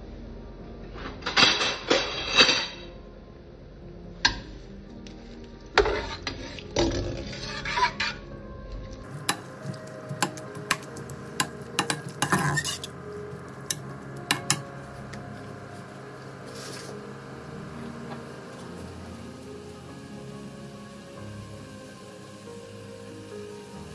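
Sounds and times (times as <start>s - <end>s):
spoon scraping pot bottom: 5.8s - 8.2s, 9.3s - 13.0s
spoon clinking against pot: 9.3s - 12.9s, 13.7s - 14.7s.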